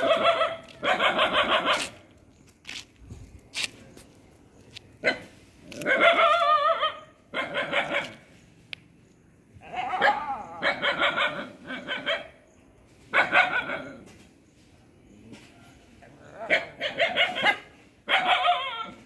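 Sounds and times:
dogs barking and yelping: 0.0 - 2.1, 5.0 - 8.3, 9.6 - 14.3, 15.2 - 19.0.

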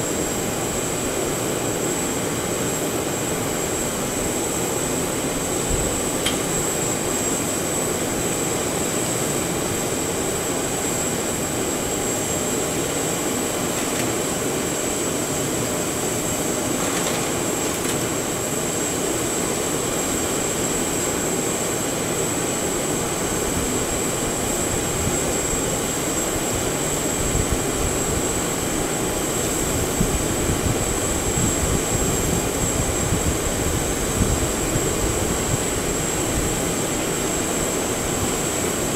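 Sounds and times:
turbine whine and rush: 0.0 - 38.9.

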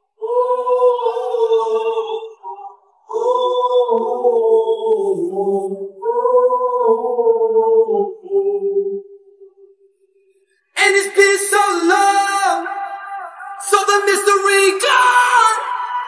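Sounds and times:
man singing long notes: 10.8 - 16.0.

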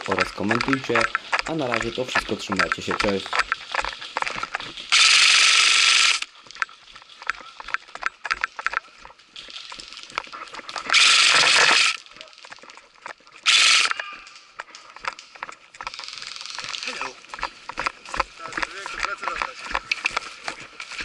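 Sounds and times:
footsteps snapping twigs: 0.0 - 21.0
airsoft rifle full-auto bursts: 4.9 - 6.3, 10.9 - 12.0, 13.4 - 14.0.

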